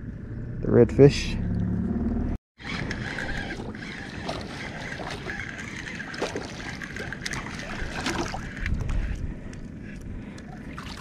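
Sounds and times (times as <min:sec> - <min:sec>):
wind: 0:00.0 - 0:11.0
water: 0:02.6 - 0:11.0.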